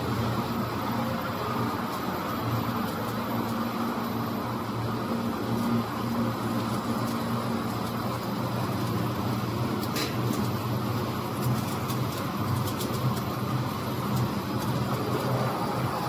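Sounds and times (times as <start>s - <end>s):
machinery humming and whirring: 0.0s - 16.0s.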